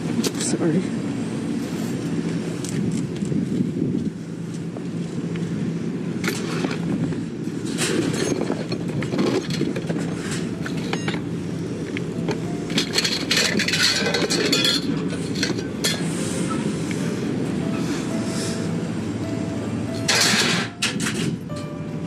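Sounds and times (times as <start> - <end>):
steady low rumble: 0.0 - 22.0
metal and glass clinking: 12.7 - 16.0.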